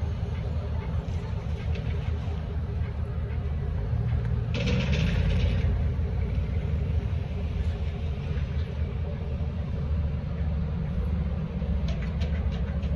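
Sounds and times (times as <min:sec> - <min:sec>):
car engines rumbling: 0:00.0 - 0:12.9.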